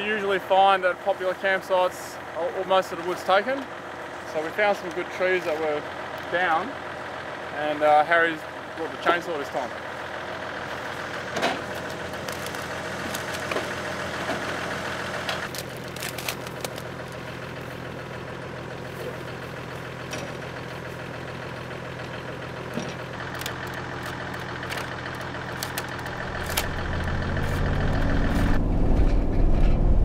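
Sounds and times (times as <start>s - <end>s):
engine running steadily: 0.0s - 30.0s
dead branches knocking and snapping: 11.3s - 14.5s, 15.2s - 17.2s.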